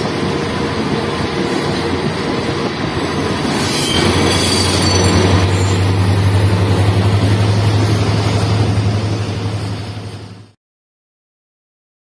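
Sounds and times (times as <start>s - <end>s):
diesel locomotive drone: 0.0s - 10.6s
wheels rumbling on track: 0.0s - 10.6s
faint high wheel squeal: 3.4s - 6.0s.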